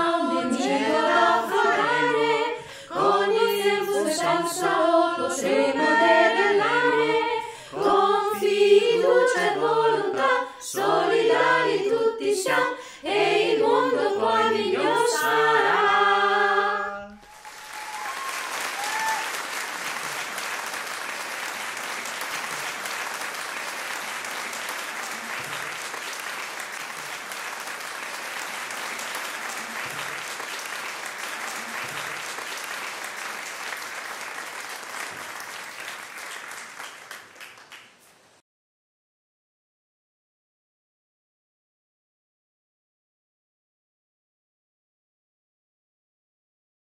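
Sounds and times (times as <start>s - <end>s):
choir singing a cappella: 0.0s - 17.2s
applause: 17.1s - 38.4s.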